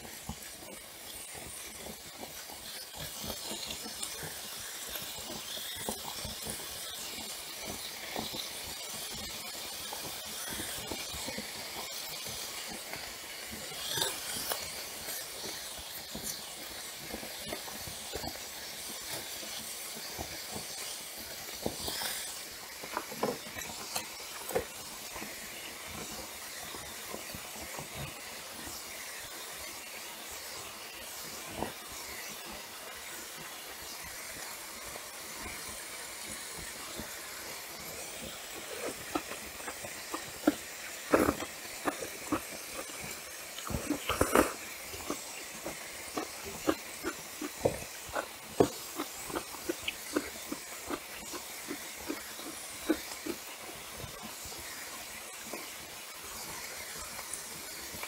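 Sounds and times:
steady hiss: 0.0s - 58.0s
chewing and mouth clicks: 38.2s - 53.5s.

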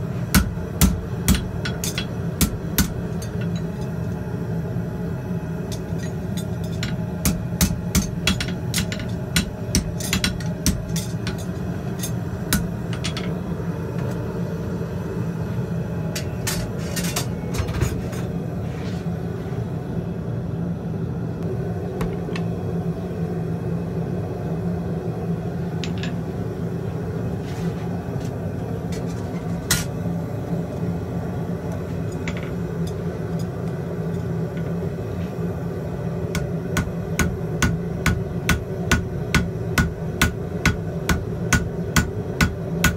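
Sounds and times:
gas forge roar: 0.0s - 42.9s
hammer striking horseshoe on anvil: 0.3s - 3.9s, 5.7s - 13.4s, 36.3s - 42.9s.

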